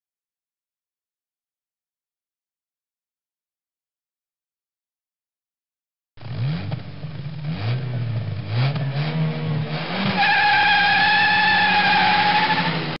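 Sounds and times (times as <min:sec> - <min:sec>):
car engine revving: 0:06.2 - 0:13.0
high tyre squeal: 0:10.0 - 0:13.0.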